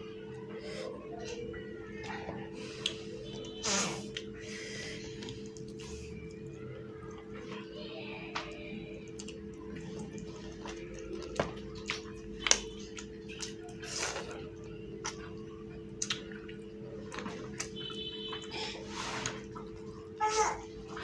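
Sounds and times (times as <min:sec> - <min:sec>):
steady low hum: 0:00.0 - 0:21.0
person chewing and mouth smacks: 0:02.7 - 0:07.3, 0:08.3 - 0:18.6, 0:19.2 - 0:20.1.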